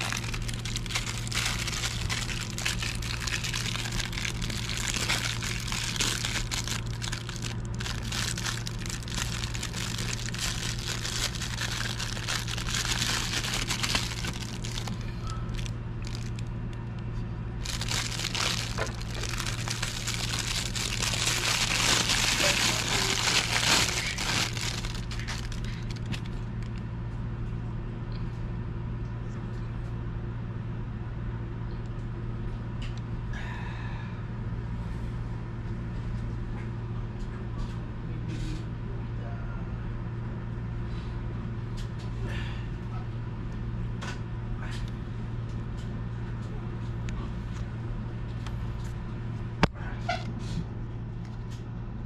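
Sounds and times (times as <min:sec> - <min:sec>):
plastic bag crinkling: 0:00.0 - 0:16.7, 0:17.6 - 0:26.8.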